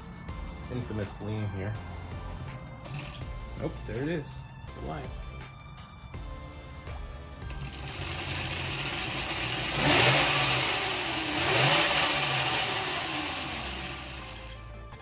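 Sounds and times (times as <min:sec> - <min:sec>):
chain and tyre whirring: 0:02.8 - 0:03.4, 0:07.5 - 0:14.8
electric motor whine: 0:07.5 - 0:15.0.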